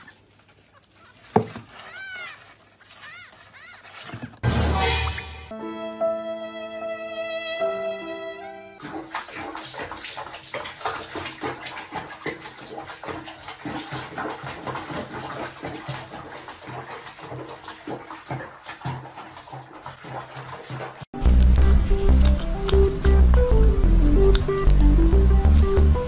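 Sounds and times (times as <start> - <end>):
held musical notes: 4.7 - 8.8, 21.2 - 26.0
water sloshing and splashing: 8.8 - 26.0.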